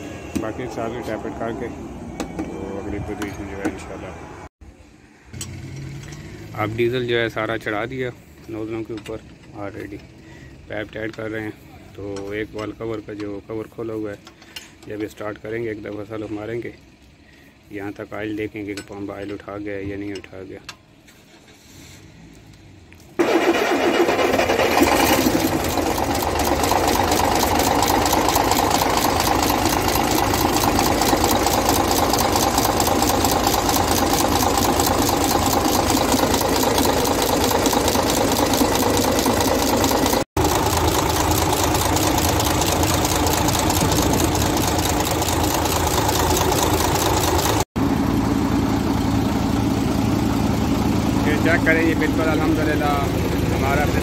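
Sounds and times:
diesel truck engine starting and idling: 0:22.2 - 0:54.0.

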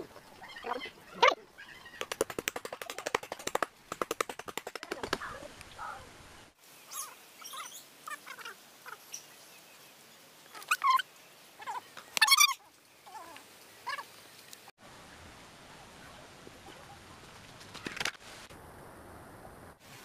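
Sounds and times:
bird rattling call: 0:01.7 - 0:05.4
bird chirps: 0:06.9 - 0:09.8.

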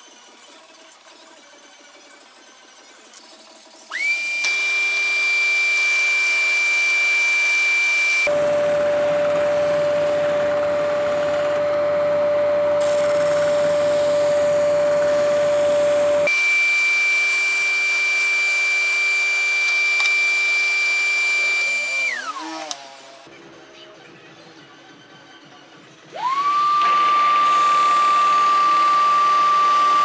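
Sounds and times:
drill press sanding drum: 0:03.9 - 0:23.2, 0:26.2 - 0:30.0
vacuum cleaner whining: 0:03.9 - 0:23.3, 0:26.1 - 0:30.0.

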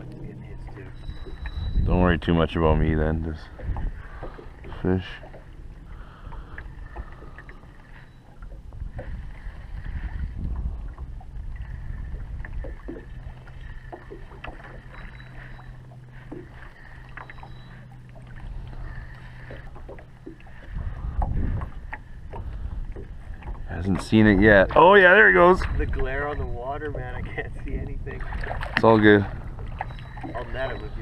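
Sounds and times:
low motor hum: 0:00.0 - 0:31.0
water against boat hull: 0:00.0 - 0:31.0
small knocks on hull: 0:13.8 - 0:15.2, 0:16.2 - 0:17.5.

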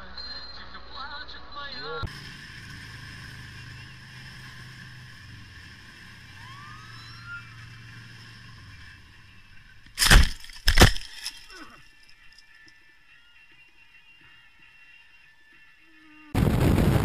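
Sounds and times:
motorcycle engine running: 0:02.0 - 0:10.0.

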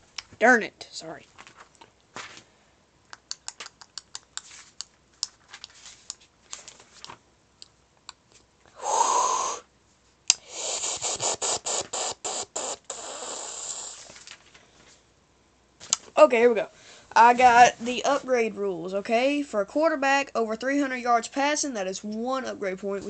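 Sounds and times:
rustling scrapes against microphone: 0:04.4 - 0:04.8, 0:05.4 - 0:07.2.

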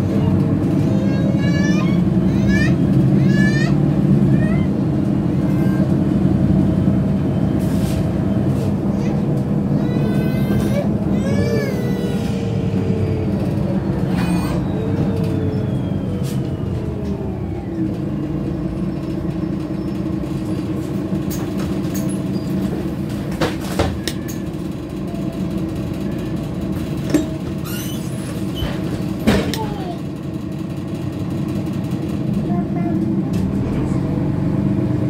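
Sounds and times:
bus engine idling: 0:00.0 - 0:35.0
bus braking whine: 0:05.3 - 0:09.8, 0:11.3 - 0:29.1.

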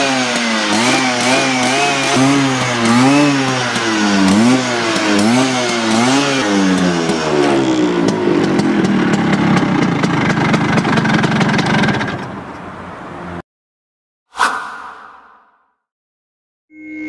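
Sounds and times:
scooter engine revving and idling: 0:00.0 - 0:12.4.

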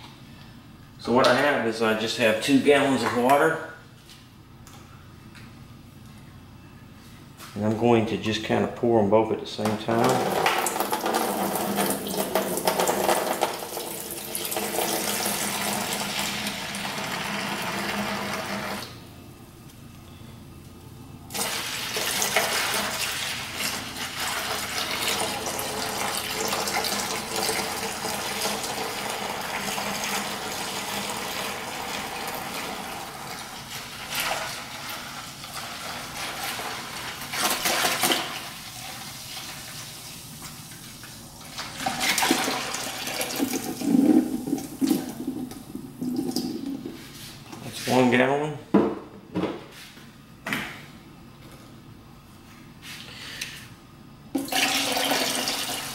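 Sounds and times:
water pouring into plastic bucket: 0:10.0 - 0:18.8, 0:41.6 - 0:46.9, 0:54.4 - 0:55.9.

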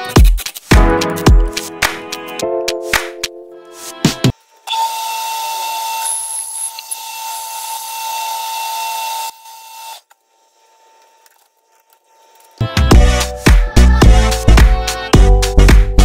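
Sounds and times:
metal lathe whining: 0:04.6 - 0:10.1.

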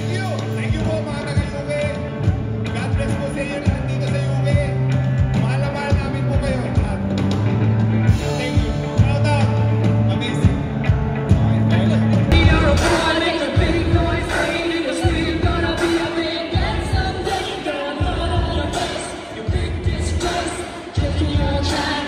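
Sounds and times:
bass guitar low notes: 0:00.0 - 0:14.3
drum kit steady beat: 0:00.0 - 0:22.0
electric guitar: 0:00.0 - 0:22.0
person singing: 0:11.3 - 0:22.0.

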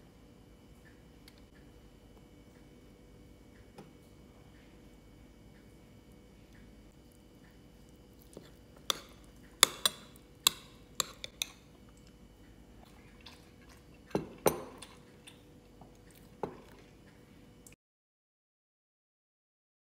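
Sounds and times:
metal spoon clinking on ceramic bowl: 0:08.8 - 0:11.7, 0:14.1 - 0:15.0.

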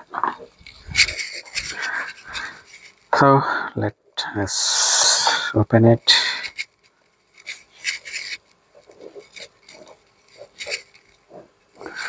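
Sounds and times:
screwdriver scraping and clicking: 0:07.3 - 0:11.2.

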